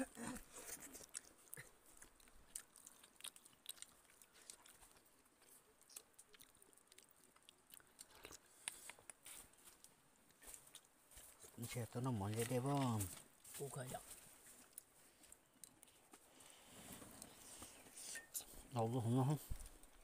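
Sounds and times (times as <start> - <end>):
faint chewing: 0.0 - 20.0
small eating clicks: 0.6 - 11.0.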